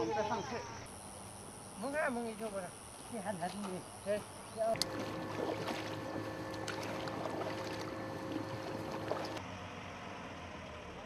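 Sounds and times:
steady hum: 3.8s - 9.4s
paddles splashing in water: 4.8s - 9.4s.

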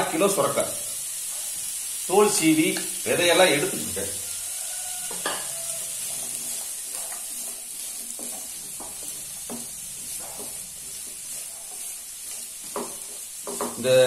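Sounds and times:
food sizzling in oil: 0.0s - 14.0s
spatula scraping pan: 3.4s - 13.9s.

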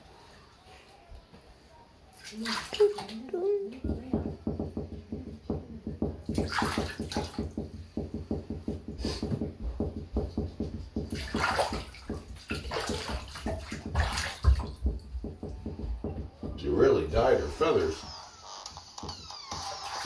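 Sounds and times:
bathwater sloshing and splashing: 2.1s - 4.6s, 5.9s - 8.5s, 9.8s - 15.8s, 19.5s - 20.0s.

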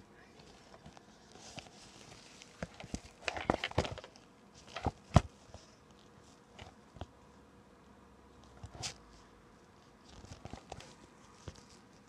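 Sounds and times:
phone handling noise: 2.4s - 5.4s.

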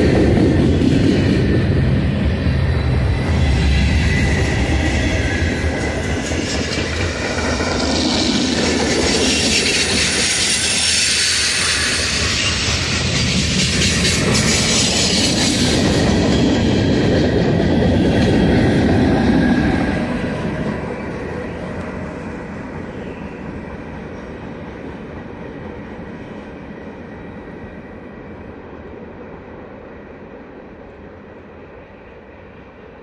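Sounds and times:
train wheels clattering over rail joints: 3.8s - 20.8s.

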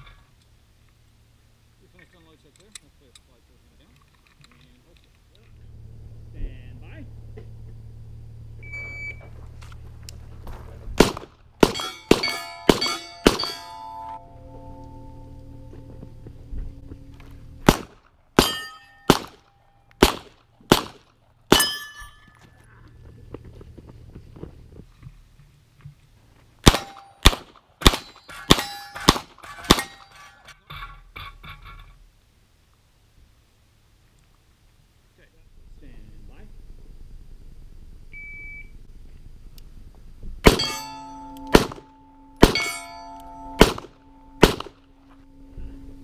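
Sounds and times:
shot timer beep: 8.6s - 9.2s, 38.2s - 38.7s
pistol shots: 11.0s - 13.9s, 17.6s - 21.8s, 26.6s - 30.1s, 40.4s - 44.8s
steel plates clanging: 11.7s - 15.2s, 18.4s - 19.1s, 21.5s - 22.4s, 28.0s - 32.0s, 40.5s - 44.4s.

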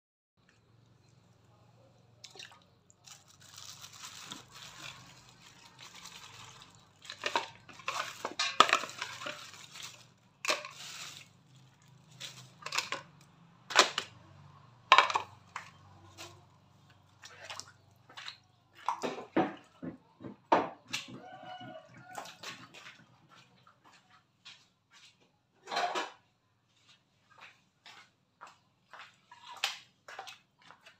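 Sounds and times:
running water splashing: 2.2s - 12.7s
metal pots and utensils clinking: 3.1s - 14.1s, 14.9s - 16.4s.

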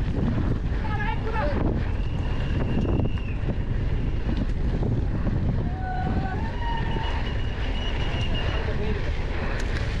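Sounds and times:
wind on microphone: 0.0s - 10.0s
bike rattling clicks: 9.4s - 10.0s.

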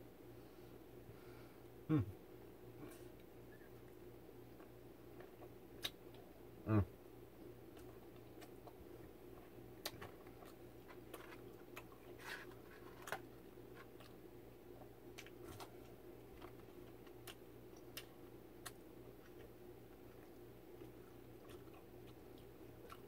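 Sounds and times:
low room hum: 0.0s - 23.0s
chewing food: 7.5s - 23.0s.

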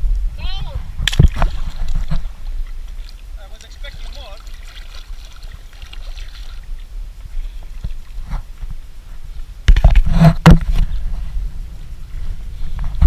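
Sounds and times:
water lapping around boat: 1.0s - 9.2s.

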